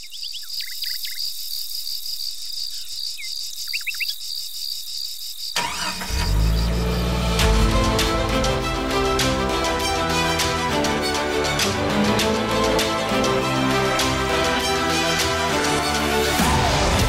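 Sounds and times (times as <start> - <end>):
crickets chirping: 0.0 - 7.2
loud music with deep bass: 7.1 - 17.0.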